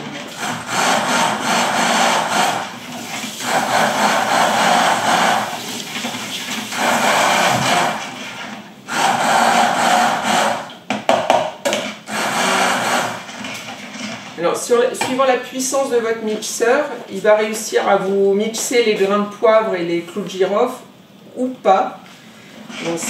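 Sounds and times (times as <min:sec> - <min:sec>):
electric blender running: 0:00.2 - 0:10.8, 0:12.0 - 0:13.6.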